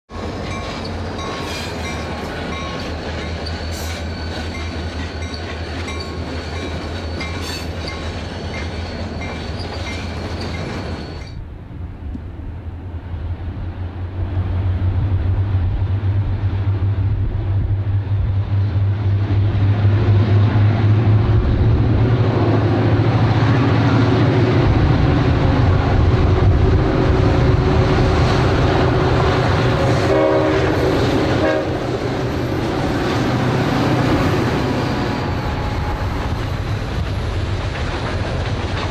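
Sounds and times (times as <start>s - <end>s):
diesel locomotive engine rumble: 0.1s - 38.9s.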